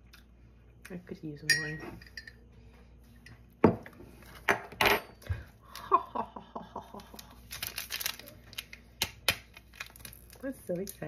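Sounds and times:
metal spoon clinking in mug: 0:01.5 - 0:02.4
plastic wrapper crinkling: 0:07.2 - 0:11.0.

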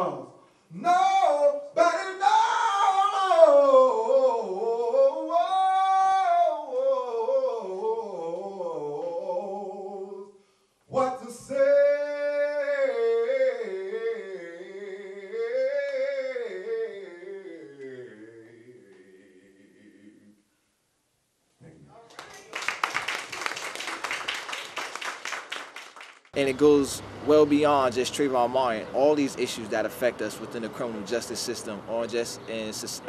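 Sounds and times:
man singing a cappella: 0:00.0 - 0:20.4.

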